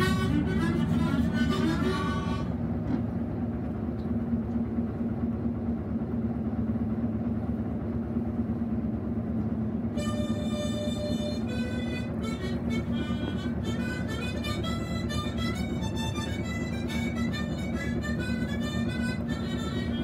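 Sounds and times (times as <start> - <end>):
harmonica playing: 0.0 - 2.6, 9.9 - 20.0
boat engine droning: 0.0 - 20.0.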